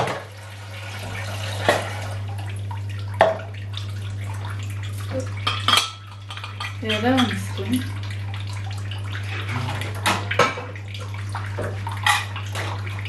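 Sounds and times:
tap running into sink: 1.5s - 2.0s, 3.2s - 3.6s, 11.5s - 12.9s.

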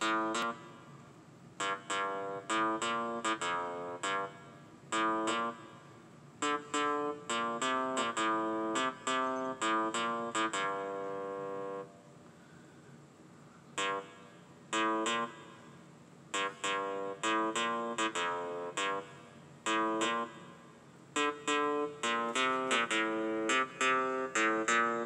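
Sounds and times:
staccato synth bass riff: 0.0s - 0.7s, 1.6s - 5.8s, 6.4s - 11.9s, 13.8s - 15.6s, 16.3s - 20.5s, 21.2s - 25.0s.

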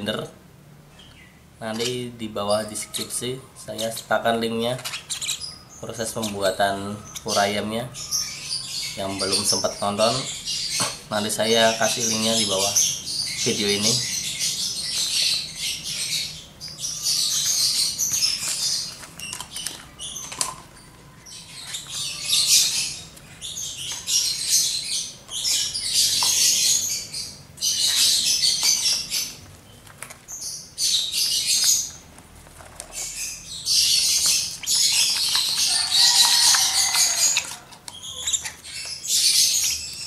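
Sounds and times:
chicks giving hissy begging calls: 33.7s - 38.6s.

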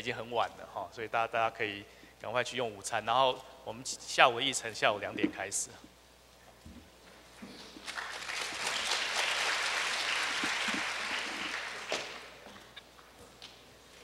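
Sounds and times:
audience applauding: 7.8s - 12.4s.

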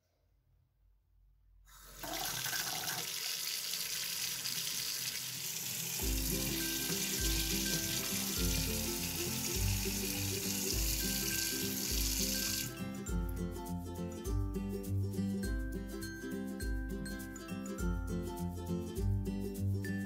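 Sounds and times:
tap water splashing into basin: 2.0s - 12.7s.

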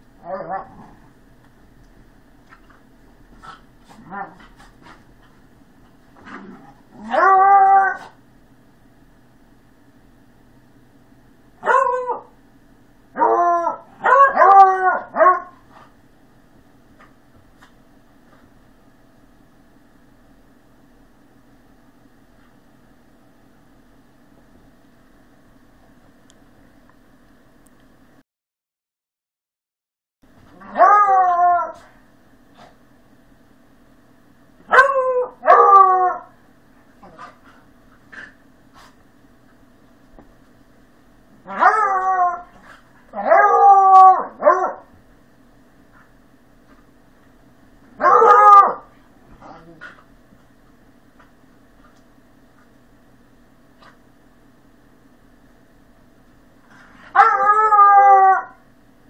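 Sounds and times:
dog barking in play: 11.6s - 12.4s, 13.2s - 15.9s, 34.6s - 36.4s, 41.4s - 44.9s, 48.0s - 50.0s.

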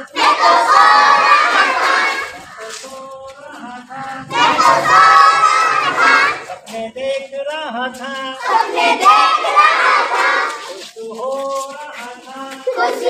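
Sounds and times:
children calling out together: 0.0s - 2.8s.

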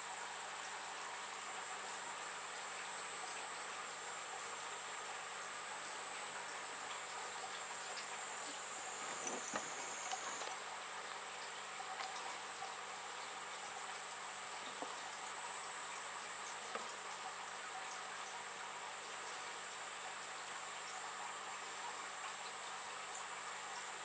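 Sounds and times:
faint hiss: 0.0s - 24.0s
soft knocks of camera: 8.5s - 10.6s.

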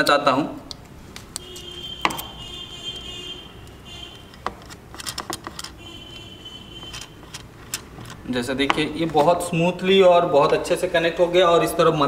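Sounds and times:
small metal clicks and taps: 4.3s - 5.8s.

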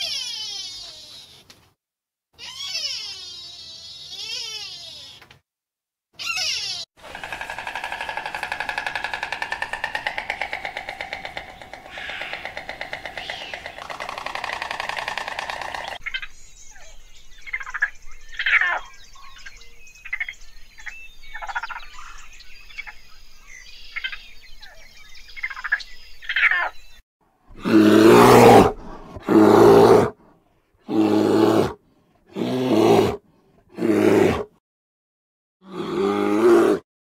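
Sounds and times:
bear roaring: 7.0s - 16.0s, 27.5s - 30.2s, 30.9s - 34.5s, 35.6s - 36.8s
harsh buzzing: 7.0s - 16.0s
raccoons chittering: 7.0s - 16.2s.

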